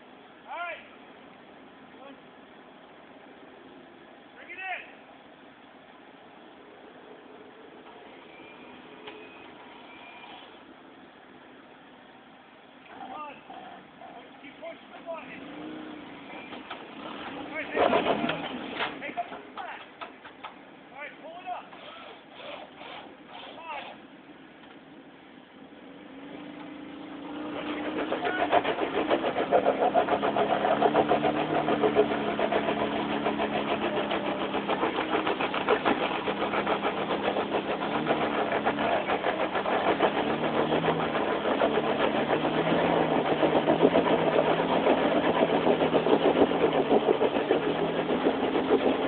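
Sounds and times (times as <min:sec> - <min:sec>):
tire spinning on rock and dirt: 0:07.7 - 0:24.4, 0:25.0 - 0:49.0
truck engine revving hard: 0:15.0 - 0:19.2, 0:26.0 - 0:49.0.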